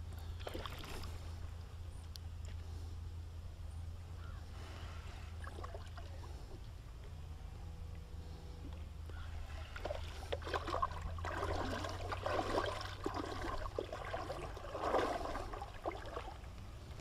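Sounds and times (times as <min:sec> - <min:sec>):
river water splashing: 0:00.4 - 0:01.4, 0:09.3 - 0:17.0.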